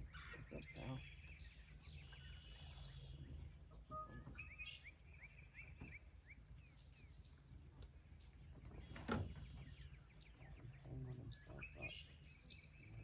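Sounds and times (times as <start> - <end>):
bird chirping faintly: 0.0 - 13.0.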